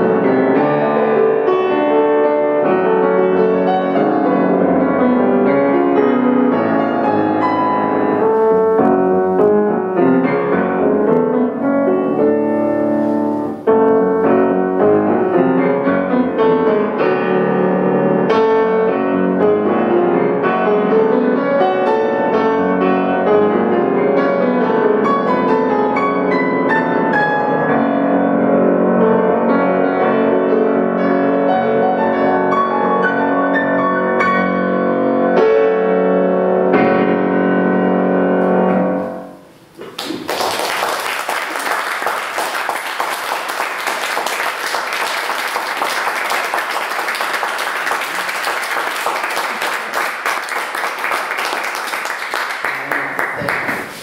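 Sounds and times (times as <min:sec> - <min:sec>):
solo grand piano: 0:00.0 - 0:54.0
audience applauding: 0:39.8 - 0:54.0.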